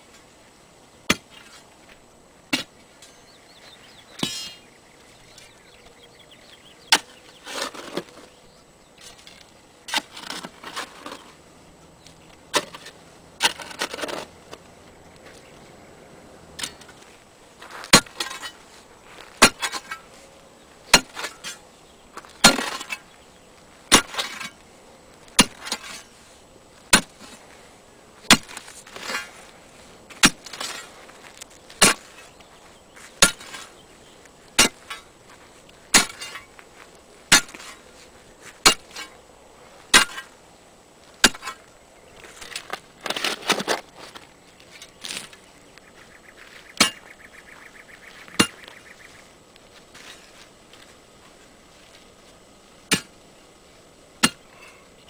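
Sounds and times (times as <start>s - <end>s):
steel bar striking hard ground: 1.1s - 1.6s, 2.5s - 3.3s, 4.2s - 4.6s, 12.5s - 14.3s, 16.6s - 18.6s, 19.2s - 20.1s, 20.9s - 21.6s, 22.2s - 23.1s, 23.9s - 24.6s, 25.3s - 26.2s, 26.9s - 27.4s, 28.2s - 29.5s, 30.1s - 31.0s, 31.7s - 32.4s, 33.2s - 33.8s, 34.5s - 36.6s, 37.3s - 37.8s, 38.5s - 39.2s, 39.9s - 40.4s, 41.2s - 41.7s, 46.7s - 47.1s, 48.3s - 48.7s, 52.8s - 53.2s, 54.2s - 54.8s
crumbling scrape of soil: 7.0s - 8.4s, 9.0s - 11.4s, 12.2s - 15.7s, 16.5s - 24.6s, 25.2s - 40.4s, 41.0s - 46.8s, 48.7s - 53.0s.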